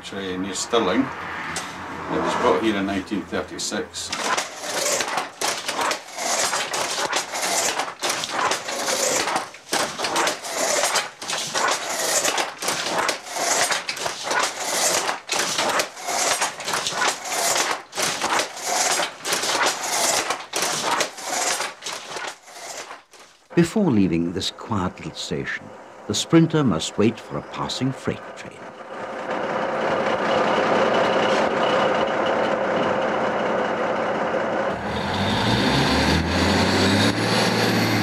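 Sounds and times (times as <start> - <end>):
handloom clacking and knocking: 4.1 - 23.6.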